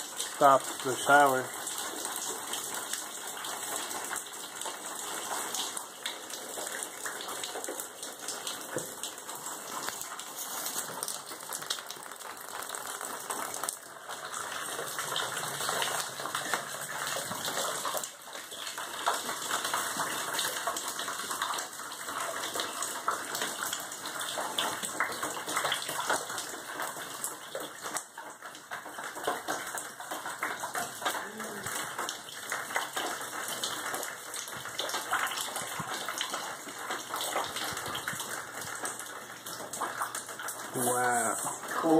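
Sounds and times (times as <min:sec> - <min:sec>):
water dripping onto floor: 0:00.0 - 0:41.9.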